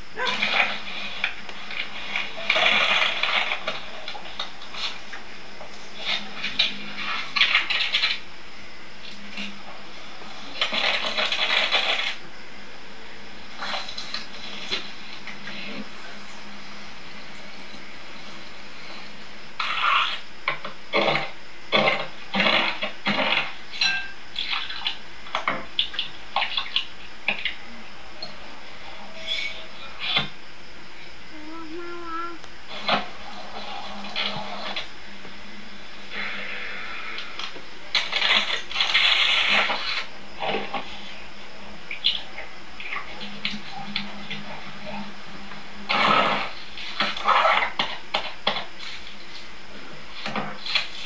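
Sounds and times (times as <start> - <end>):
steady hiss: 0.0 - 51.0
spatula clinking against glass bowl: 23.8 - 24.1
kitchen utensils scraping and clinking: 23.8 - 24.2, 29.1 - 30.2.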